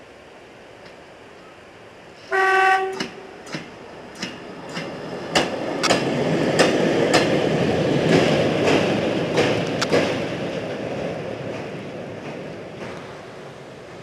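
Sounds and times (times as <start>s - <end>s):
train running noise: 0.0s - 14.0s
train horn blast: 2.2s - 3.4s
wheels clicking over rail joints: 2.9s - 13.2s.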